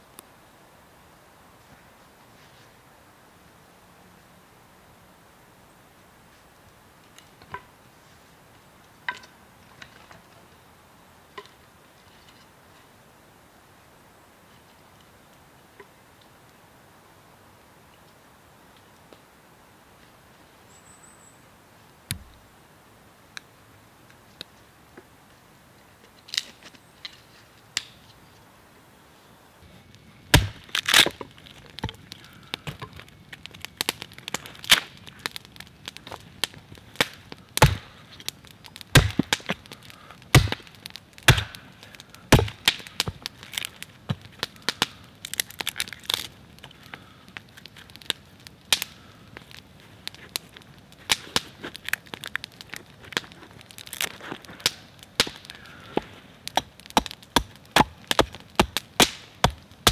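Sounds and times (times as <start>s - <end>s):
wood cracking and splintering: 30.3s - 59.9s.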